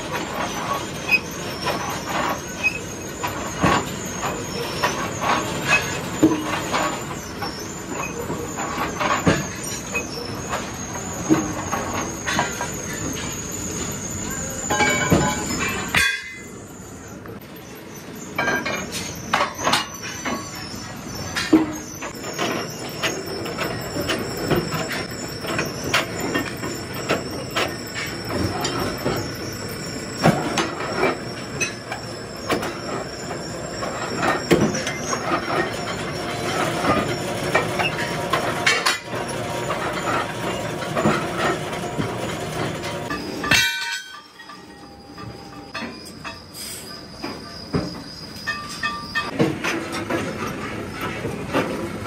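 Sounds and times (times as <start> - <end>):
metallic clatter and scraping: 0.0 - 16.5, 18.3 - 52.0
drill bit squealing in metal: 0.2 - 16.0, 16.8 - 42.0.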